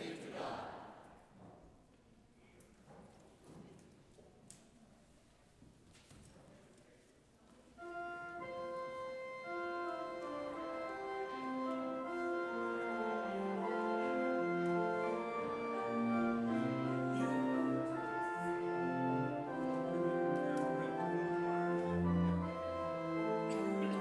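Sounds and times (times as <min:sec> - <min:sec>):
church organ chords: 0:07.8 - 0:24.0.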